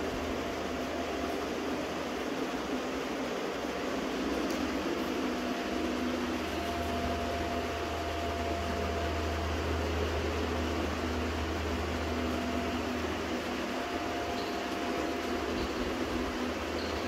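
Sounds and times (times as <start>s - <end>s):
low hum: 0.0s - 17.0s
faint steady tone: 3.7s - 17.0s.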